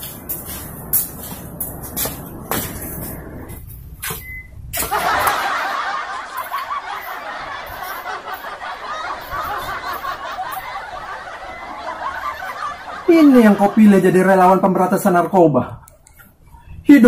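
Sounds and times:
crowd laughing: 4.8s - 14.9s.

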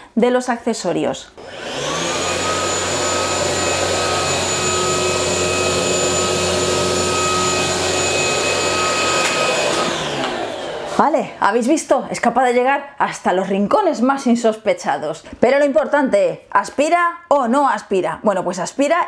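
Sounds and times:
stick vacuum motor whining: 1.4s - 11.0s.

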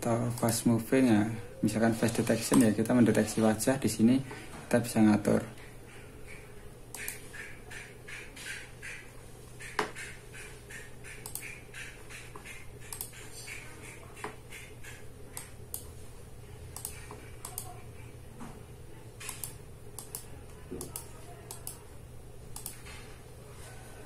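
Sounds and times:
steady low hum: 0.0s - 24.0s
computer mouse clicking: 0.3s - 0.7s, 2.1s - 3.0s, 6.3s - 9.0s, 9.6s - 15.9s, 16.7s - 17.8s, 19.2s - 21.9s, 22.5s - 22.9s.

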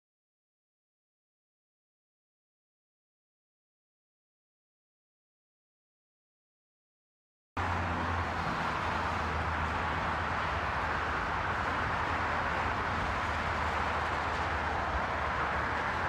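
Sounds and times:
highway traffic rushing: 7.6s - 16.0s.

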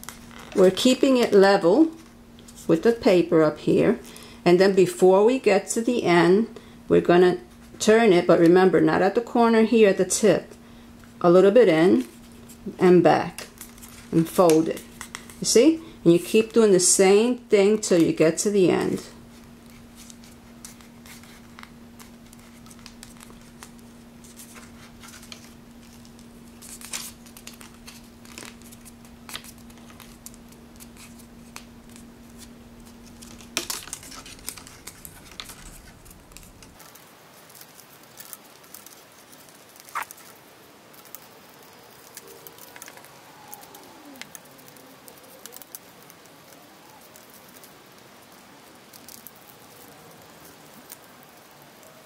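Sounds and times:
paper crinkling and crackling: 0.0s - 3.2s, 11.9s - 16.6s, 17.9s - 52.0s
faint steady hum: 0.0s - 52.0s.

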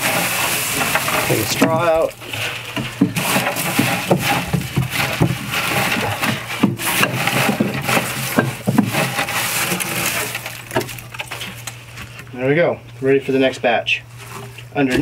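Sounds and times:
scrapes and knocks on wood: 0.0s - 12.0s
dry straw rustling and crackling: 0.0s - 12.2s.

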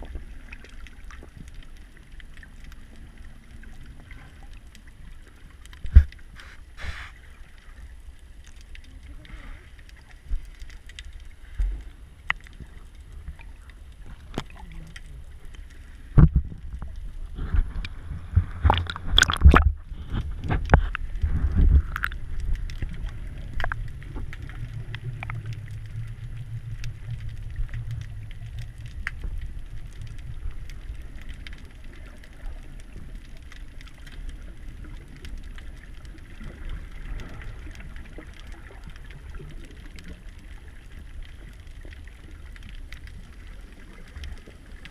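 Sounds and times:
clicks and crackles: 0.0s - 44.9s
muffled underwater rumble: 0.0s - 44.9s
loud knocks and gurgling thumps: 5.9s - 7.1s, 16.1s - 16.6s, 17.4s - 22.2s.

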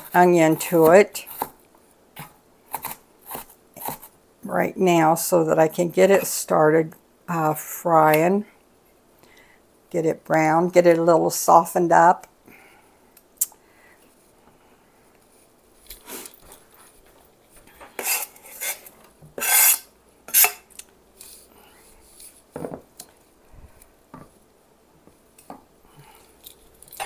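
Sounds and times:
knife scraping cutting board: 2.2s - 4.1s, 17.9s - 20.6s.

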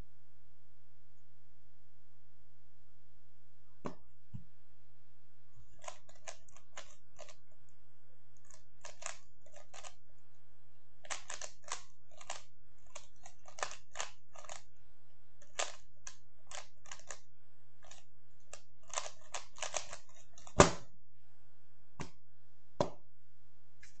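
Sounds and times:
puzzle cube plastic clicking: 5.8s - 7.4s, 8.4s - 10.0s, 11.0s - 14.7s, 15.4s - 17.2s, 17.8s - 20.6s.

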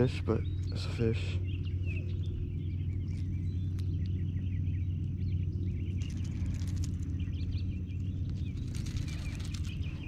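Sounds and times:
low hum: 0.0s - 10.0s
small birds chirping: 0.0s - 10.0s
rustling: 6.0s - 7.3s, 8.2s - 10.0s.

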